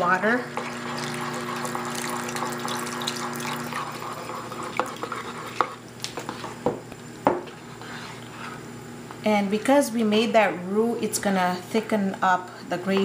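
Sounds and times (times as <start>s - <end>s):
spatula stirring pot: 0.5s - 6.8s, 7.4s - 8.6s
water pouring into pot: 1.0s - 4.2s.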